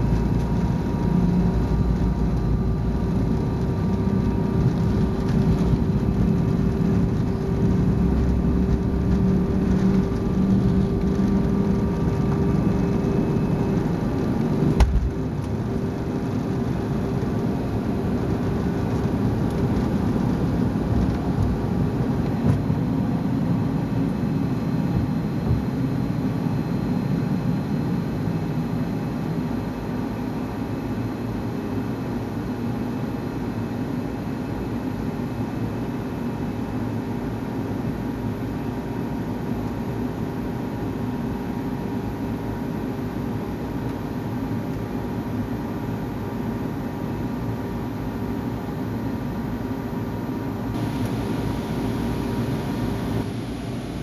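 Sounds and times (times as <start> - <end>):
wheels rumbling on runway: 0.0 - 25.7, 50.7 - 54.0
jet engines at takeoff power: 0.0 - 54.0.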